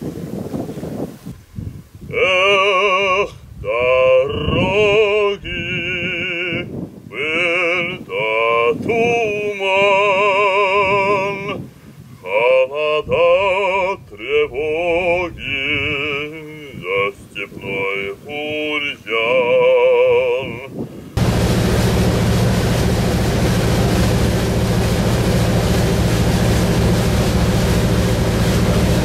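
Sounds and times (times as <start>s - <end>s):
man singing operatically: 2.0s - 20.8s.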